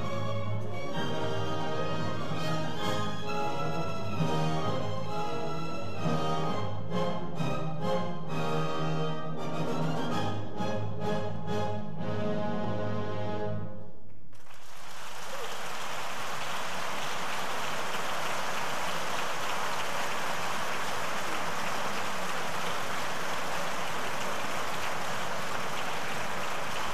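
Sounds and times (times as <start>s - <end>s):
audience clapping: 14.1s - 26.9s.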